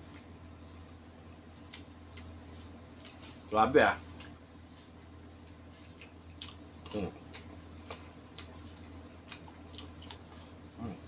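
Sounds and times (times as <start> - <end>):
steady low hum: 0.0 - 11.0
chewing: 5.7 - 10.9.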